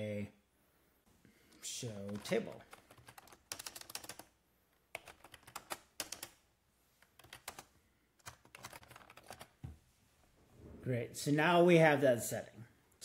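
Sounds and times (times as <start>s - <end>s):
computer keyboard typing: 2.0s - 4.3s, 4.9s - 6.4s, 7.0s - 9.6s.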